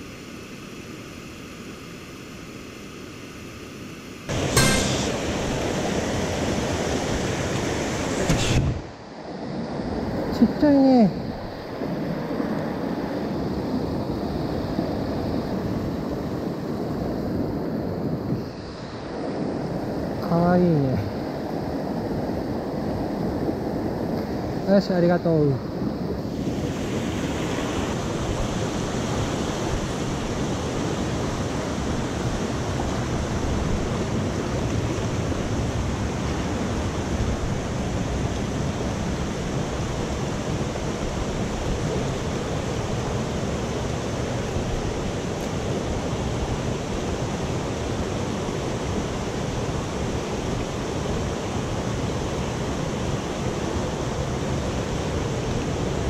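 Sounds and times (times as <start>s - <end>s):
stream rushing over rocks: 4.3s - 9.0s.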